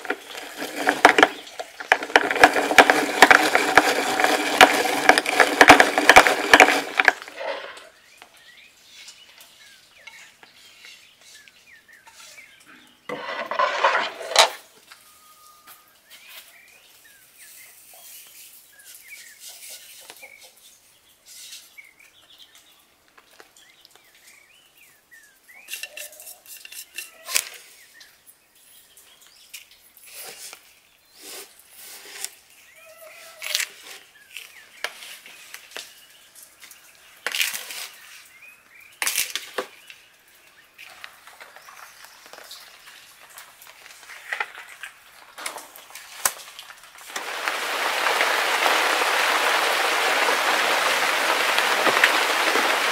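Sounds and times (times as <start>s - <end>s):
rotary grater grinding nuts: 0.0s - 7.8s
metal spoon scraping plastic bowl: 0.0s - 7.9s, 11.4s - 14.6s
rustling: 0.0s - 8.1s, 40.8s - 52.9s
birds chirping faintly: 0.0s - 45.4s.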